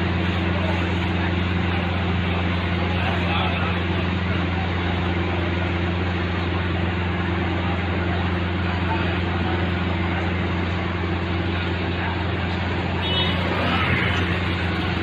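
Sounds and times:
busy street noise: 0.0s - 15.0s
fire engine idling drone: 0.0s - 15.0s.

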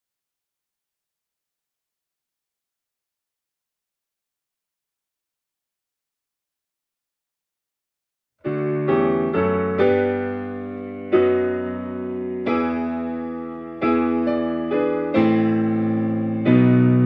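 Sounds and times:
slow piano chords: 8.4s - 17.0s.

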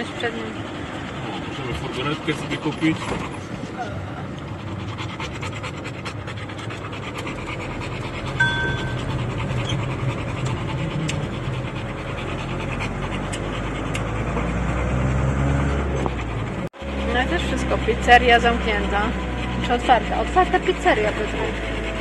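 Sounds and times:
dog panting: 0.0s - 22.0s.

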